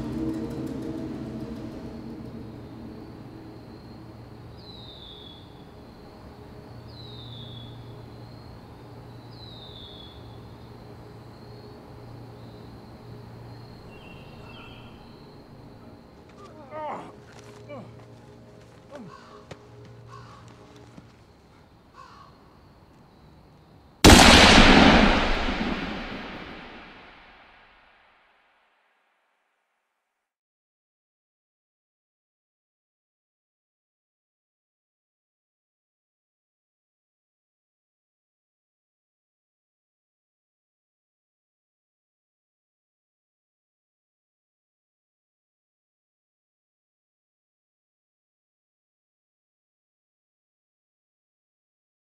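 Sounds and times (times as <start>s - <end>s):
insect-like drone: 0.0s - 20.7s
crow cawing: 19.0s - 20.5s, 22.0s - 22.4s
low hum: 24.0s - 27.4s
gunshot with echo: 24.0s - 27.5s.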